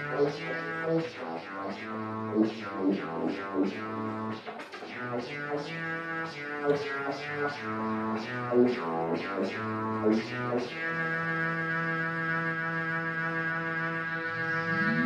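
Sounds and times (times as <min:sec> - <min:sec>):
droning synth line: 0:14.0 - 0:15.0
sustained synth chord: 0:14.1 - 0:15.0.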